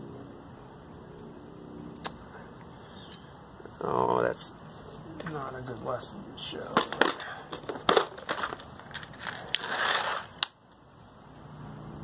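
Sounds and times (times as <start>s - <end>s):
plastic box clicks and rattles: 6.8s - 9.7s
rustling scrape: 7.7s - 10.5s.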